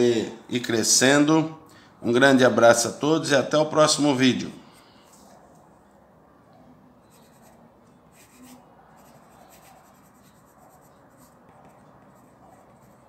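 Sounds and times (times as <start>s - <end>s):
pencil scratching on paper: 7.0s - 13.0s.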